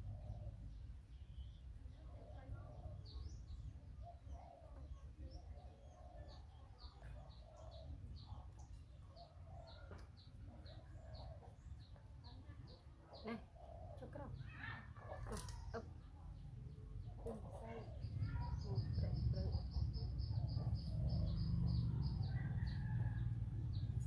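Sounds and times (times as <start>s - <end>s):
small bird chirping: 0.0s - 24.0s
low outdoor rumble: 14.0s - 24.0s.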